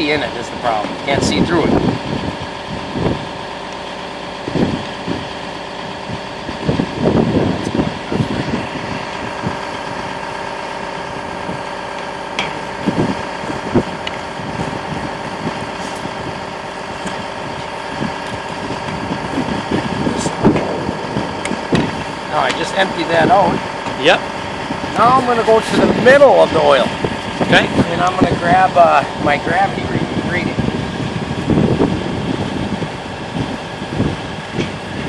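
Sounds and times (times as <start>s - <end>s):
engine idling: 0.0s - 35.0s
steady tones: 8.4s - 32.0s.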